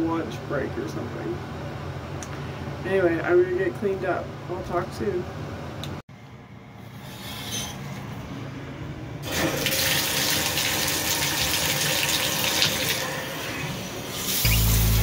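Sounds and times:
shower water running: 9.2 - 15.0.

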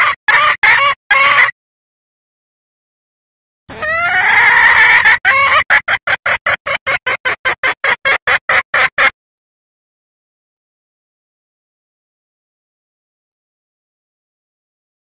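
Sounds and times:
hen clucking: 0.0 - 1.5, 3.7 - 9.1
hen calling: 3.7 - 9.1.

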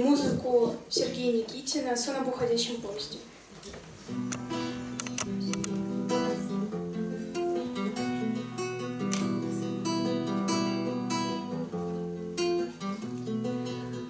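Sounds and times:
classical guitar strumming chords: 4.0 - 14.0.

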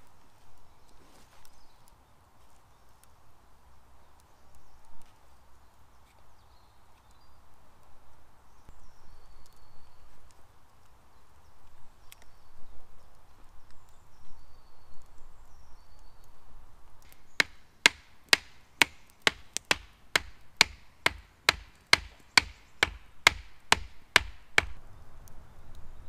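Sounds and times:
wooden stake being hammered: 17.1 - 24.8.

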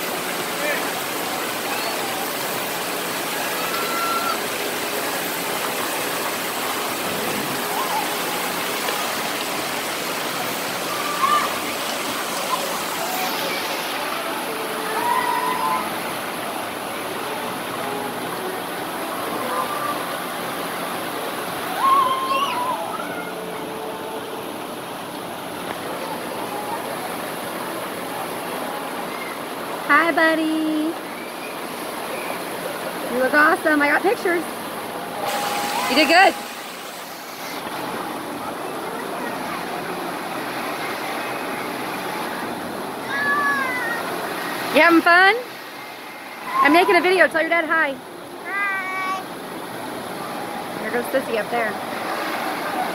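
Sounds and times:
water spraying and splashing: 0.0 - 47.8, 48.4 - 52.9
distant children shouting: 3.4 - 4.6, 7.0 - 8.6, 10.7 - 16.2, 21.6 - 24.2, 40.8 - 44.4.

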